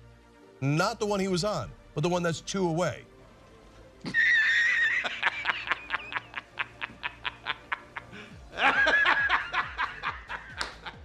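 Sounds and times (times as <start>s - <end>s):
high shrieking laughter: 4.0s - 10.5s
man belly laughing: 4.0s - 11.0s.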